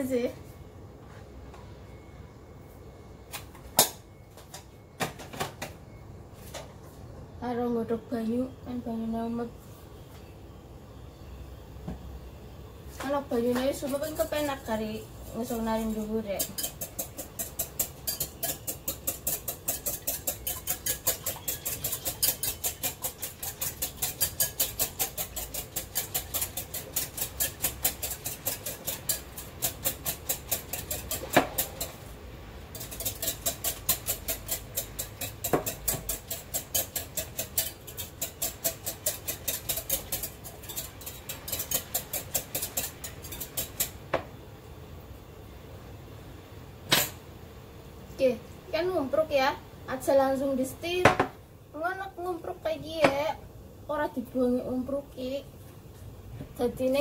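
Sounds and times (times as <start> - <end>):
whisk clicking against glass bowl: 16.4 - 32.0, 32.7 - 44.0.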